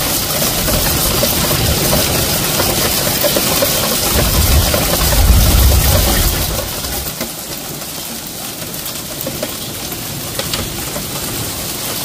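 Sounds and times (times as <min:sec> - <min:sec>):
hail drumming on car roof: 0:00.0 - 0:12.0
rain: 0:00.0 - 0:12.0
low rumble: 0:04.0 - 0:07.1.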